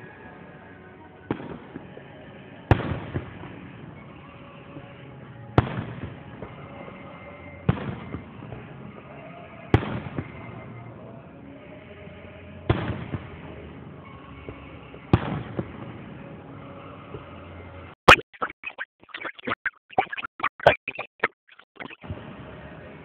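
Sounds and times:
fireworks booming: 1.3 - 1.9, 2.7 - 4.0, 5.2 - 6.6, 7.7 - 9.0, 9.7 - 10.6, 12.7 - 13.5, 14.5 - 16.3.

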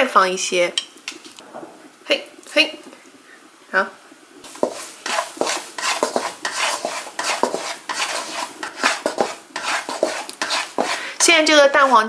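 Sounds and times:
spatula scraping a wok: 4.4 - 12.0.

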